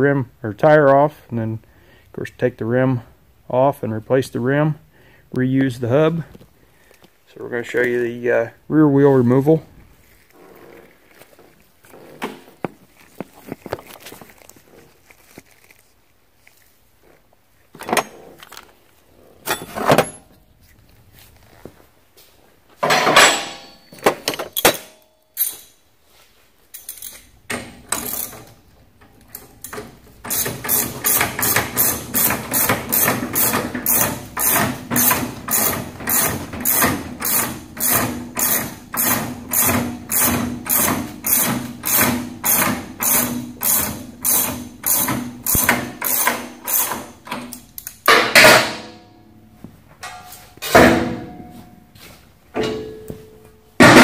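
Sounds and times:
ratchet wrench clicking: 0:26.8 - 0:28.6, 0:29.6 - 0:47.9.

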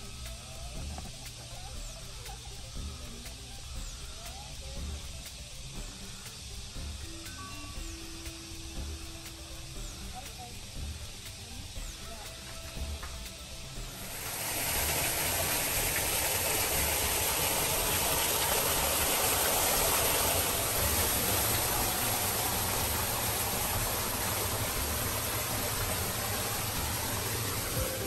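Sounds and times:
water feature splashing: 0:13.8 - 0:28.0.

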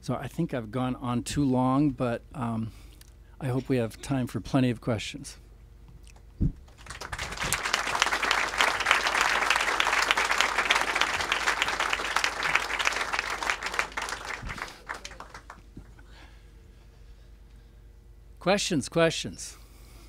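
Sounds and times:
audience applauding: 0:06.7 - 0:15.7.

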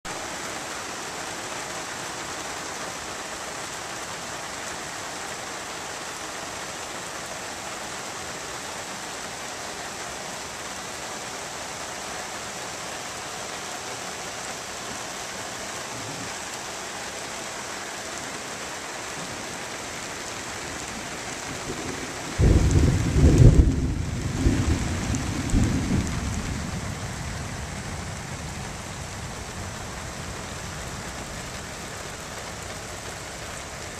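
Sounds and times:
heavy rain: 0:00.0 - 0:33.9
thunder rumbling: 0:21.4 - 0:32.1.

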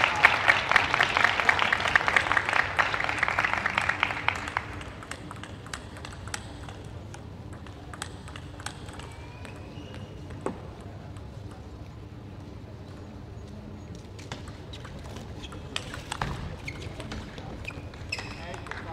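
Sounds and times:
audience applause: 0:00.0 - 0:05.1
table tennis ball bouncing: 0:05.0 - 0:11.2.

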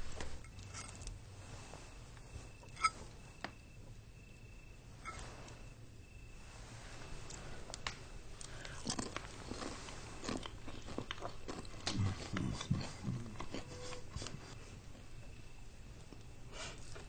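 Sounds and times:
knife and fork scraping a plate: 0:02.7 - 0:03.0
crunchy chewing: 0:07.3 - 0:15.2.

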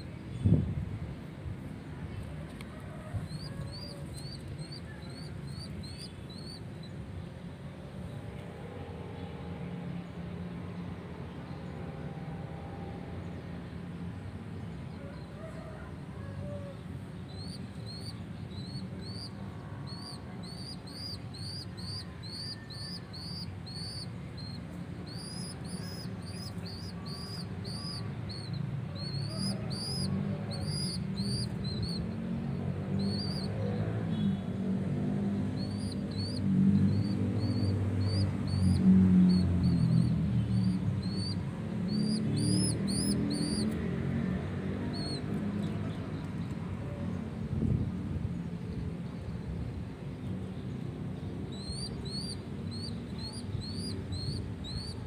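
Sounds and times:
pigeon squab squeaking: 0:17.4 - 0:32.0, 0:33.0 - 0:33.8, 0:35.6 - 0:43.8, 0:44.9 - 0:45.3, 0:51.5 - 0:55.0.

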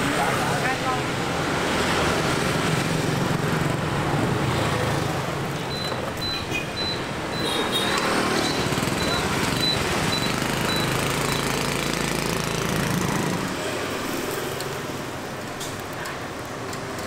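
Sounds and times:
motorbike traffic passing: 0:00.0 - 0:17.0.

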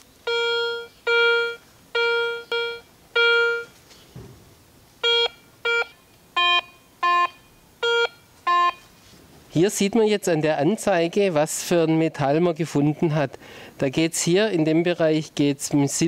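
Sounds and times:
metal detector beeping: 0:00.3 - 0:03.8, 0:05.0 - 0:08.9.

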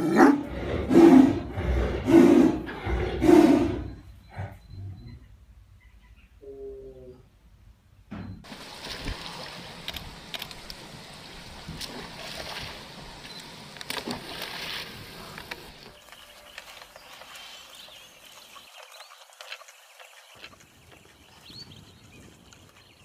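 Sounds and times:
water sloshing and splashing: 0:08.4 - 0:23.0.

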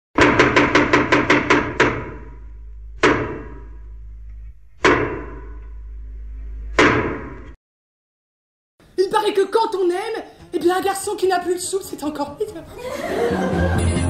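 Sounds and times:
sharp percussive hits: 0:00.2 - 0:03.9, 0:04.8 - 0:05.8
steady low hum: 0:01.5 - 0:07.6.

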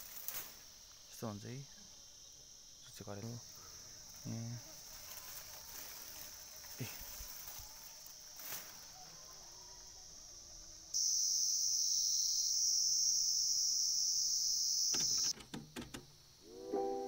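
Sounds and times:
high-pitched insect drone: 0:00.0 - 0:15.3
sharp clicks: 0:14.9 - 0:16.1.

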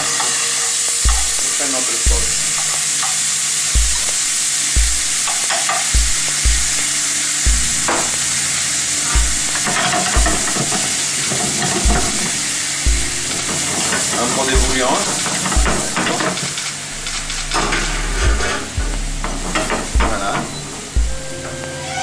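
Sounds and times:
sauce sizzling in frying pan: 0:00.0 - 0:19.9
dull low thump: 0:01.1 - 0:01.4, 0:03.8 - 0:04.2, 0:04.8 - 0:05.3, 0:06.0 - 0:06.8, 0:11.8 - 0:12.2, 0:17.0 - 0:21.3.

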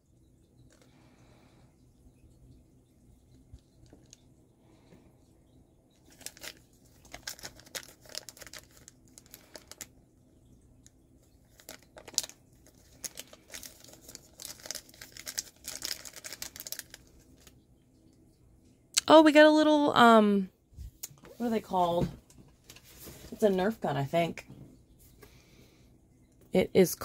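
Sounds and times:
plastic wrapper crinkling and tearing: 0:06.0 - 0:10.0, 0:10.8 - 0:17.6.

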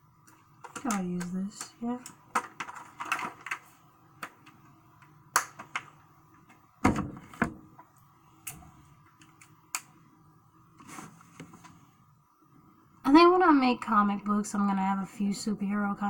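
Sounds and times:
small objects clicking on a desk: 0:00.2 - 0:06.6.

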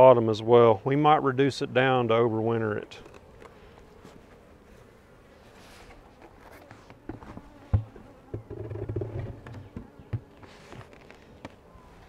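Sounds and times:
bees buzzing faintly: 0:00.0 - 0:12.0
hive lid knocking: 0:07.0 - 0:10.4
lid rubbing rumble: 0:07.1 - 0:10.3.

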